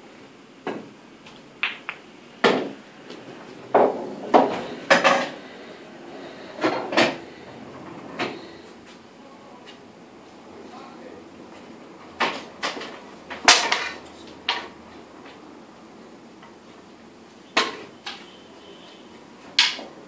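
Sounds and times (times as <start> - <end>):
cue striking ball: 1.6 - 2.8, 3.7 - 5.0
pool balls knocking: 1.6 - 5.4.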